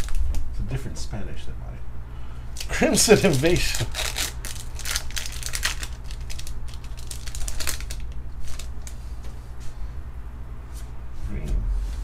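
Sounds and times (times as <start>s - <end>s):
foil wrapper crinkling: 0.0s - 0.4s, 2.6s - 9.0s
low steady hum: 0.0s - 12.0s.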